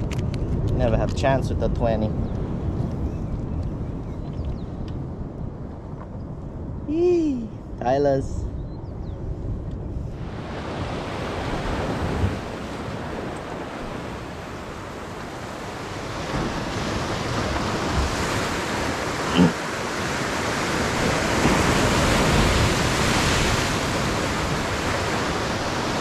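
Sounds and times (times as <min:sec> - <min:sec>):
wind buffeting microphone: 0:00.0 - 0:26.0
surf breaking over rocks: 0:10.2 - 0:26.0.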